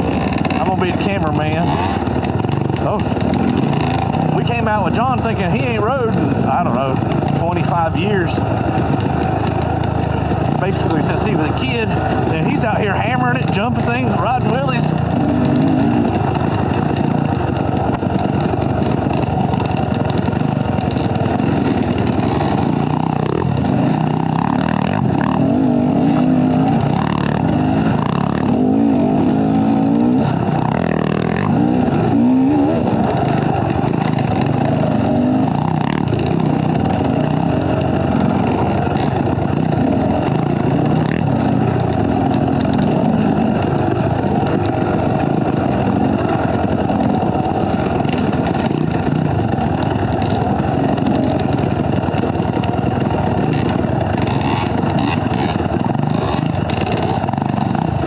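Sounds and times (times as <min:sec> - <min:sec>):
dirt bike engine revving: 0:00.0 - 0:58.0.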